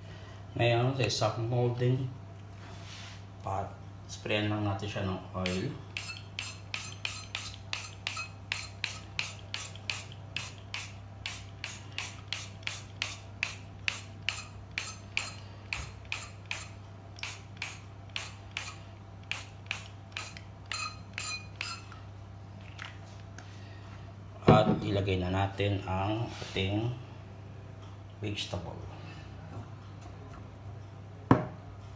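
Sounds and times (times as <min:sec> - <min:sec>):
oil mister spraying: 0:05.4 - 0:21.8.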